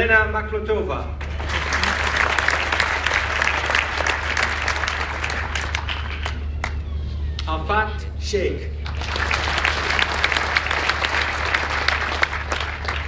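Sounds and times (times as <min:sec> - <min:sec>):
audience applauding: 0:01.2 - 0:07.1, 0:08.8 - 0:13.0.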